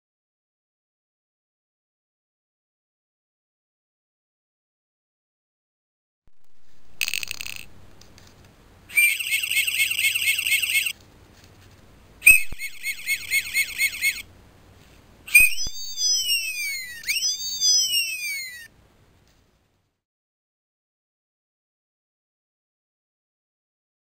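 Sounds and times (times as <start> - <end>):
toy siren wail: 8.9 - 10.9, 12.3 - 14.2, 15.3 - 18.7
fast high warbling chirps: 8.9 - 11.0, 12.2 - 14.3, 15.3 - 18.7.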